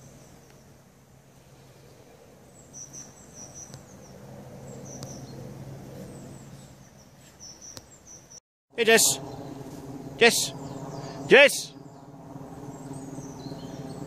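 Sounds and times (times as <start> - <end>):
small songbirds chirping: 0.0 - 14.0
faint low hum: 8.8 - 14.0.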